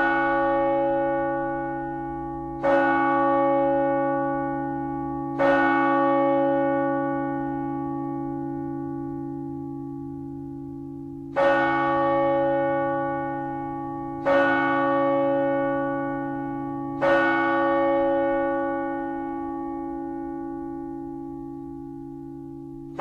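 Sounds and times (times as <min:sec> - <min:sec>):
large bell ringing: 0:00.0 - 0:23.0.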